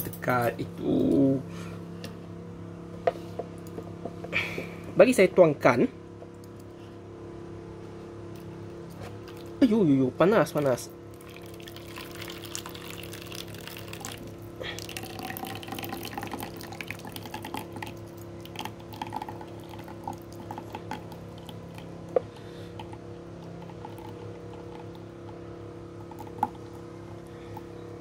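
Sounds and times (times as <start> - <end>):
faint steady hum: 0.0 - 28.0
hot water trickling and dripping: 11.1 - 22.1.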